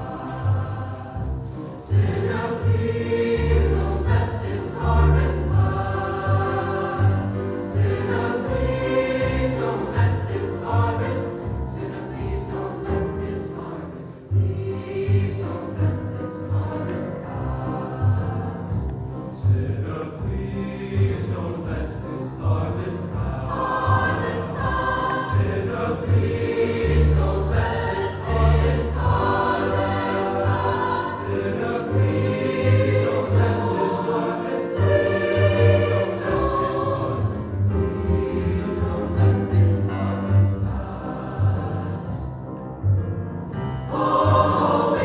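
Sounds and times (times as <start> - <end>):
double bass: 0.0 - 33.9, 34.8 - 45.0
choir singing: 0.0 - 42.6, 43.5 - 45.0
piano: 0.0 - 45.0
string section: 0.0 - 45.0.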